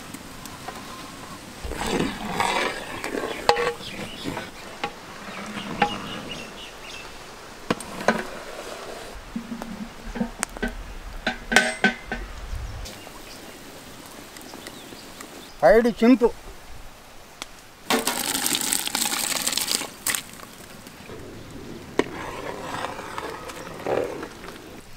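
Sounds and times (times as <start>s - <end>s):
ladle stirring in pot: 0.6s - 6.5s, 22.0s - 24.6s.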